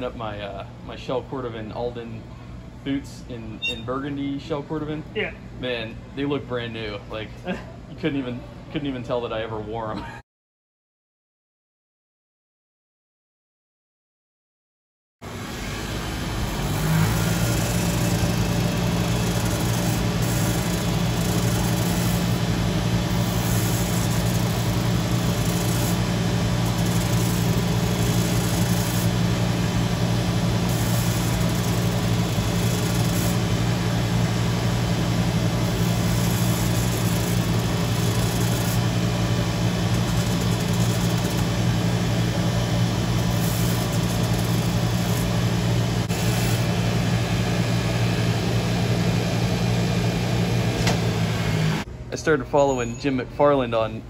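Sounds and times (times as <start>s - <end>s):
shoe finishing machine humming: 15.2s - 53.6s.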